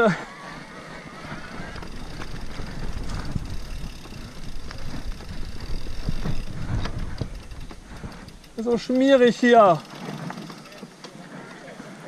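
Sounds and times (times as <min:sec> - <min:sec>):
bike knocking and rattling: 0:00.0 - 0:12.0
bike tyres rumbling over dirt: 0:00.0 - 0:12.0
wind on microphone: 0:00.2 - 0:08.4.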